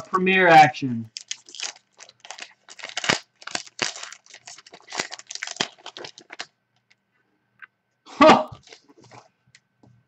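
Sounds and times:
wrapper crinkling and tearing: 1.1 - 6.9.

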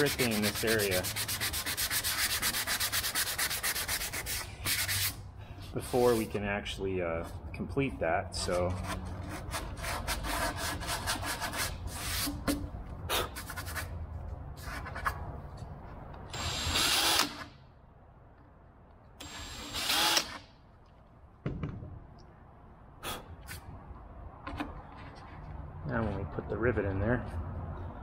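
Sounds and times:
rubbing and scraping on wood: 0.0 - 6.6, 8.4 - 16.0
power drill drilling: 16.3 - 17.5, 19.2 - 20.4.

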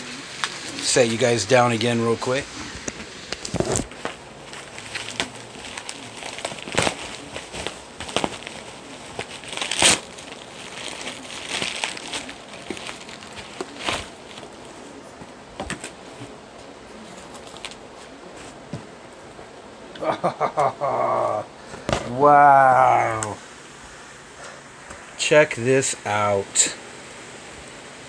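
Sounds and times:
packaging crinkling and rustling: 0.3 - 16.4, 17.0 - 18.5.

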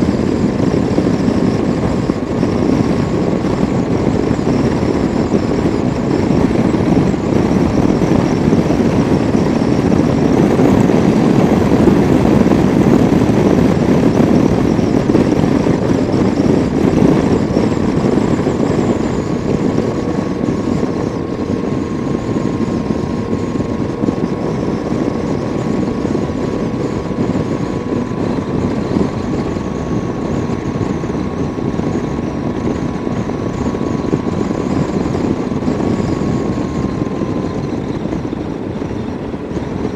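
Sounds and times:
faint steady whine: 0.0 - 39.9
motorcycle engine running: 0.0 - 39.9
wind rushing over camera: 0.0 - 39.9.

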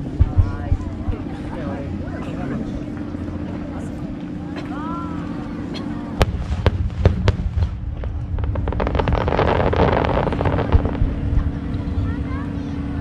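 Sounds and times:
fireworks booming: 0.0 - 1.6, 6.1 - 12.0
fireworks crackling: 6.2 - 11.7.

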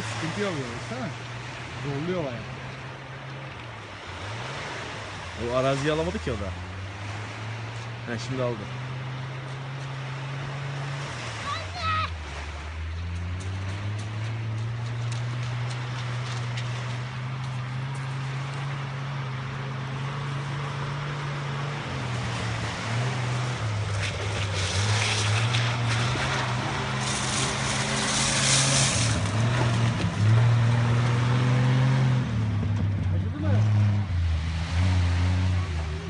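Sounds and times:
off-road vehicle engine driving: 0.0 - 36.0.

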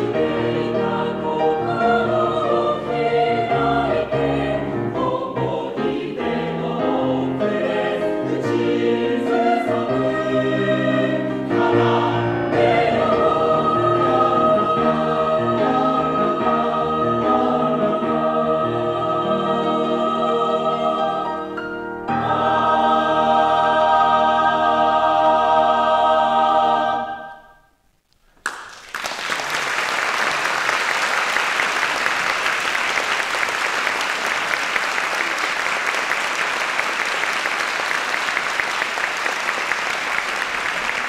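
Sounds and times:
choir singing with piano: 0.0 - 27.7
audience applause: 28.4 - 41.0.

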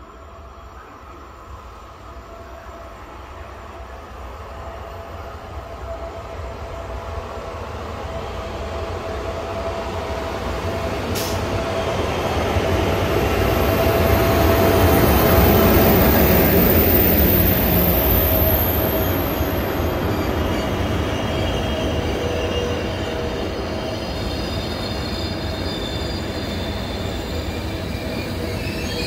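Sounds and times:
passing train rumble: 0.0 - 29.0
high tone from wheels and rails: 9.7 - 29.0.

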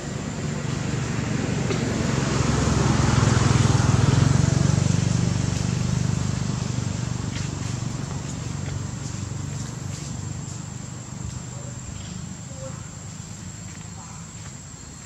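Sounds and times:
motor vehicle passing: 0.0 - 14.7.

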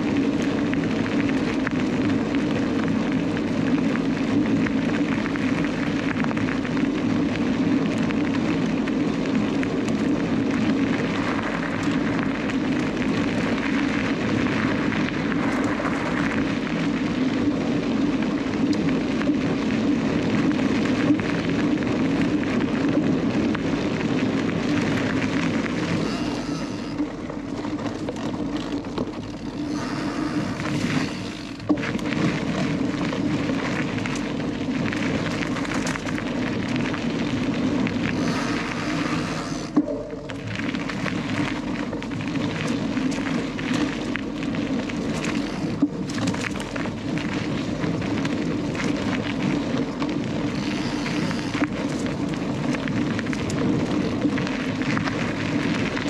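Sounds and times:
bike tyres rumbling on gravel: 0.0 - 56.0
wind on microphone: 28.8 - 56.0.

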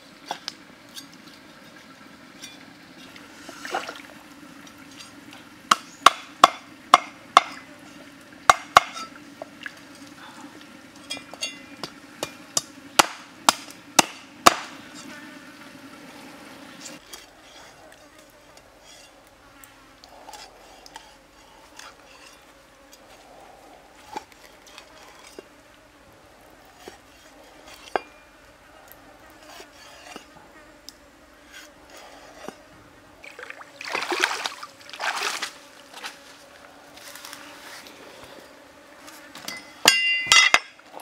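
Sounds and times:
insects buzzing: 0.0 - 41.0
stream water trickling: 0.8 - 5.6, 6.2 - 12.3, 33.2 - 36.1
water splashing: 3.1 - 4.4, 33.2 - 36.1
cleaver chopping fish on board: 12.6 - 14.8.

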